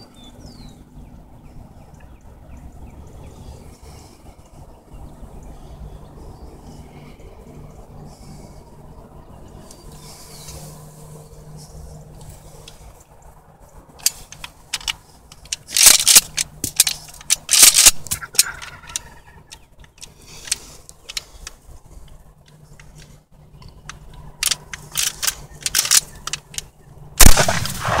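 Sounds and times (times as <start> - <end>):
shotgun slide clicks and clacks: 14.0 - 21.6, 23.8 - 28.0
shotgun blast: 27.2 - 28.0.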